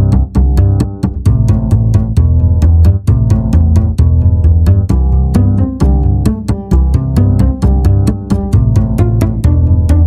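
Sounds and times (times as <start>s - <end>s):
background music with heavy bass: 0.0s - 10.0s.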